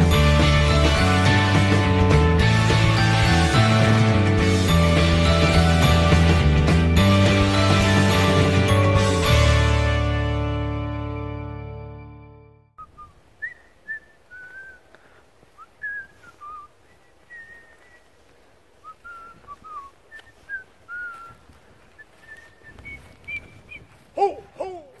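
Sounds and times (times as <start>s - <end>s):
short whistled notes: 12.8s - 14.8s, 15.6s - 18.2s, 18.8s - 24.0s
faint outdoor background noise: 12.8s - 25.0s.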